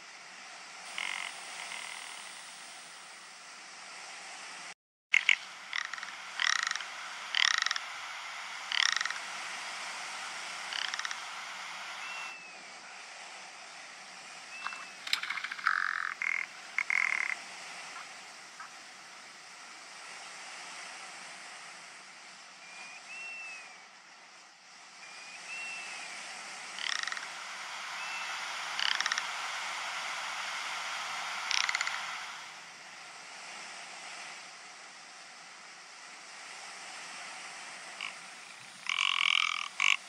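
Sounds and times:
steady hiss: 0:00.0 - 0:40.0
bird croaking rattles: 0:00.9 - 0:02.3, 0:05.2 - 0:08.0, 0:08.6 - 0:09.3, 0:10.6 - 0:12.2, 0:14.6 - 0:17.4, 0:26.8 - 0:27.4, 0:28.0 - 0:29.5, 0:31.3 - 0:32.4, 0:38.0 - 0:40.0
thin whistled notes: 0:12.0 - 0:12.6, 0:14.3 - 0:15.2, 0:22.6 - 0:23.8, 0:25.0 - 0:26.2.

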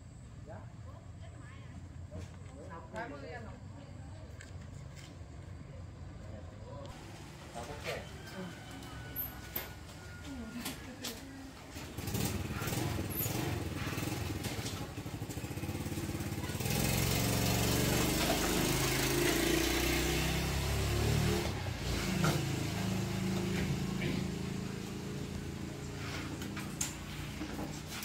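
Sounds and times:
motorcycle engine running: 0:10.8 - 0:28.0.

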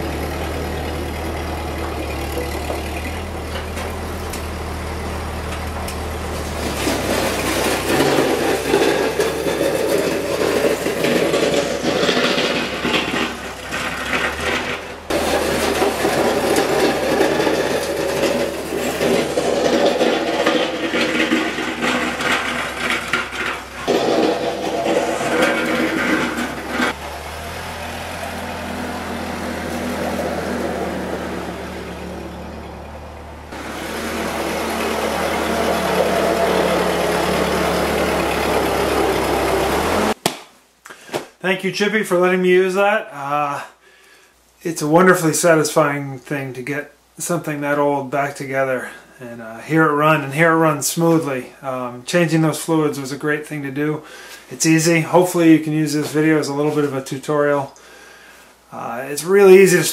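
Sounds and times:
tractor engine running: 0:00.0 - 0:40.2.

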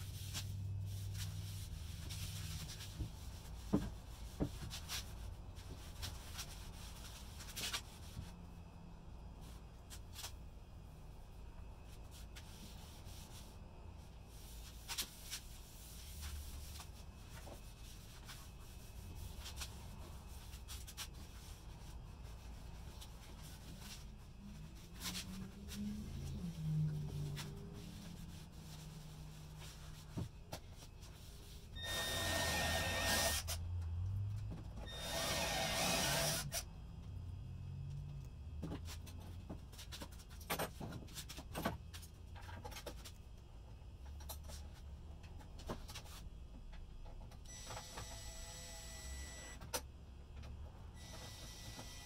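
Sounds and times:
cordless drill whining: 0:31.8 - 0:33.5, 0:34.9 - 0:36.6.

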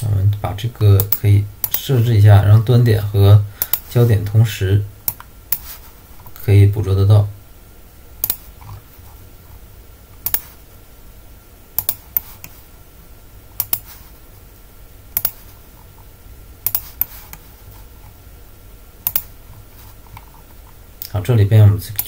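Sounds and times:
faint steady hum: 0:00.0 - 0:22.0
mouse and keyboard clicks: 0:08.2 - 0:08.8, 0:10.2 - 0:10.5, 0:11.8 - 0:12.6, 0:13.6 - 0:13.9, 0:15.2 - 0:15.4, 0:16.7 - 0:17.4, 0:19.1 - 0:19.3.

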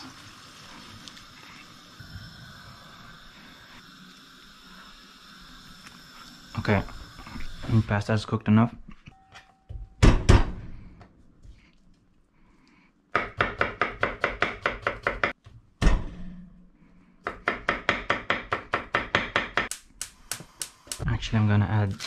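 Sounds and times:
knife chopping on wooden board: 0:13.2 - 0:15.4.

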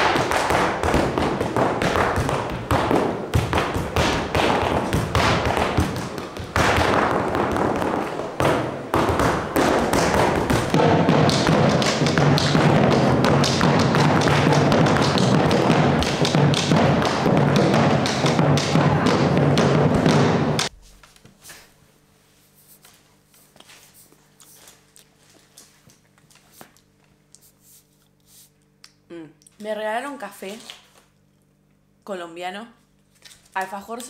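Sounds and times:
rapid foot stamping on stage: 0:00.0 - 0:20.7
drums beaten with sticks: 0:00.0 - 0:20.8.

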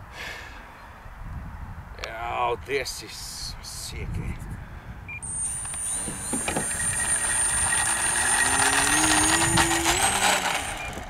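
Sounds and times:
model plane electric motor whining: 0:05.2 - 0:11.0.

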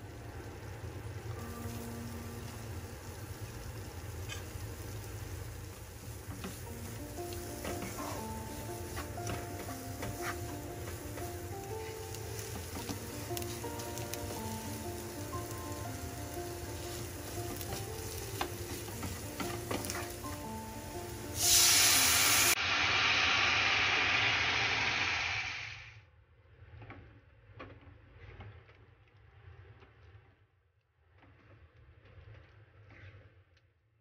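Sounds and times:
background music: 0:00.0 - 0:03.7, 0:06.1 - 0:22.6
broth sizzling in a hot pan: 0:00.0 - 0:25.9
spatula scraping a pan: 0:07.6 - 0:11.0.

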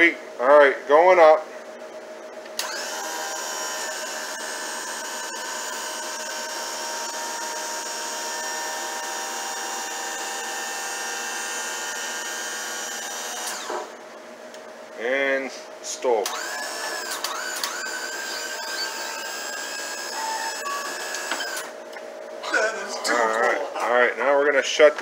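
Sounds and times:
hydraulic pump motor whining: 0:02.6 - 0:14.0, 0:16.2 - 0:21.8.

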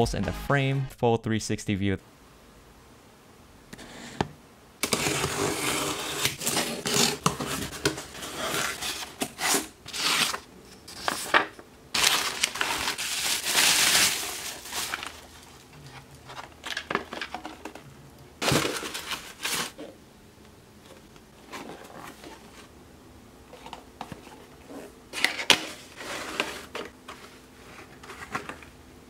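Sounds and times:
paper and cardboard rustling: 0:04.8 - 0:20.0, 0:20.9 - 0:22.7, 0:23.5 - 0:28.7.

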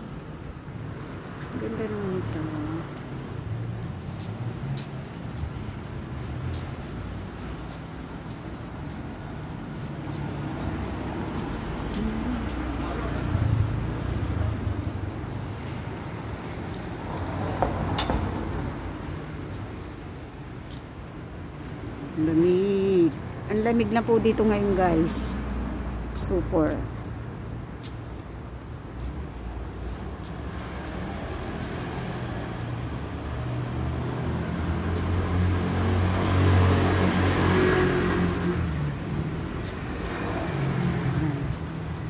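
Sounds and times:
vehicle engine hum approaching: 0:00.0 - 0:20.8, 0:21.6 - 0:42.0
traffic rumble: 0:00.0 - 0:42.0.

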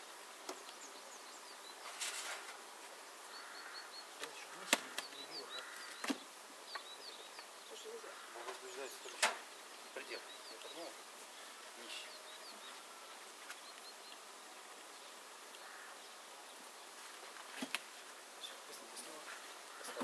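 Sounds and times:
honeybees buzzing: 0:00.0 - 0:20.0
hive parts clacking: 0:08.4 - 0:09.5.

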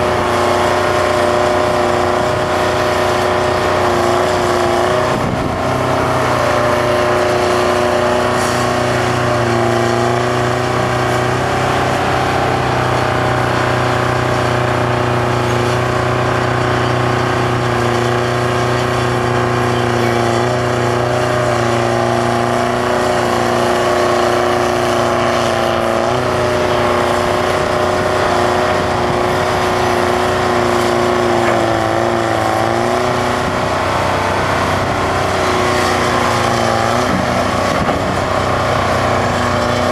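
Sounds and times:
excavator diesel engine running: 0:00.0 - 0:39.9.

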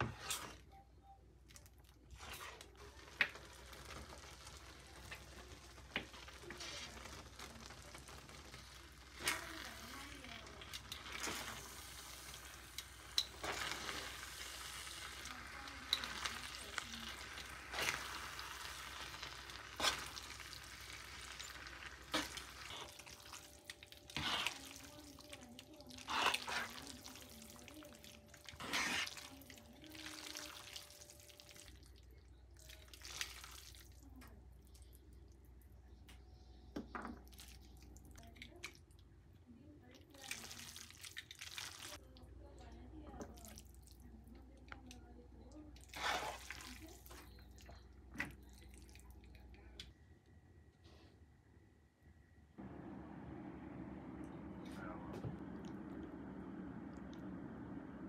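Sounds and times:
sauce sizzling and bubbling: 0:01.9 - 0:34.0, 0:40.2 - 0:42.0, 0:45.8 - 0:47.6
metal tongs scraping pan: 0:28.6 - 0:29.3.

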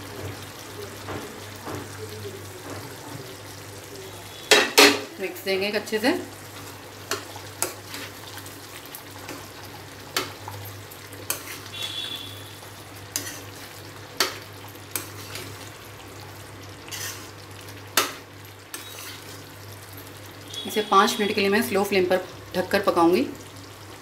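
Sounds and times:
spatula scraping a pan: 0:07.1 - 0:08.4, 0:11.1 - 0:15.6, 0:16.8 - 0:17.4, 0:18.0 - 0:19.5.

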